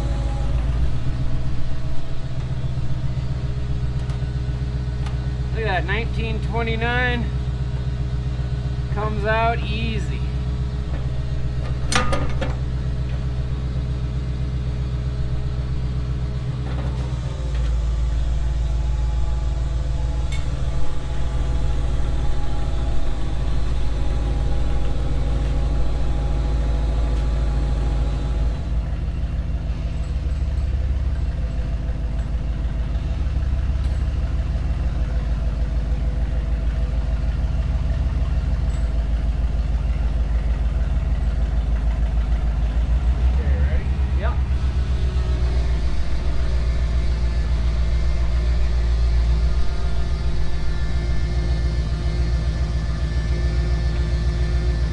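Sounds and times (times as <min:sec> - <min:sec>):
truck engine idling: 0:00.0 - 0:54.9.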